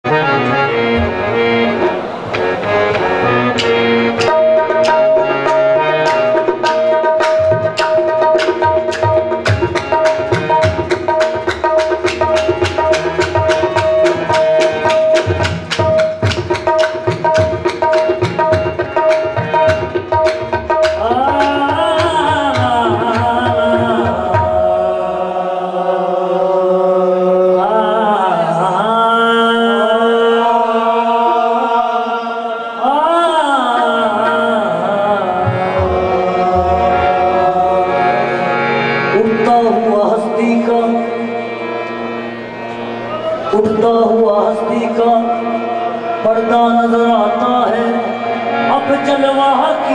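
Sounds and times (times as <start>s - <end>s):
harmonium drone: 0.0s - 49.9s
fast tabla playing: 0.2s - 25.4s, 33.6s - 49.9s
person singing gliding phrases: 21.0s - 41.6s, 43.1s - 49.9s.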